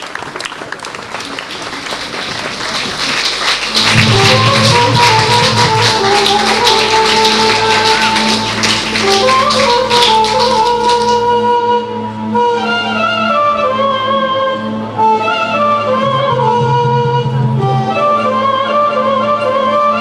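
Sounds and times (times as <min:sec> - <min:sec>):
audience applause: 0:00.0 - 0:11.2
sharp percussive taps: 0:03.6 - 0:11.2
low drone under a melody: 0:03.7 - 0:20.0.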